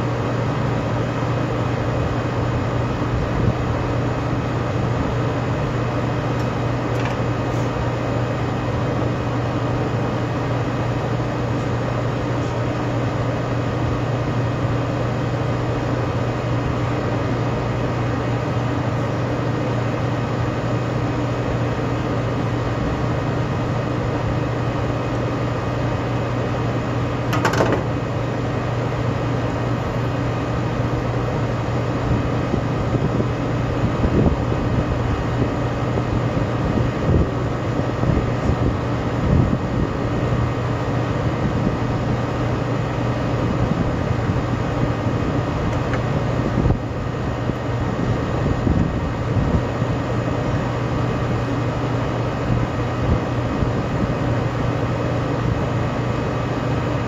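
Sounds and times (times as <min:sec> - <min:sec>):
machinery hum: 0:00.0 - 0:57.0
uneven knocks: 0:27.3 - 0:27.9.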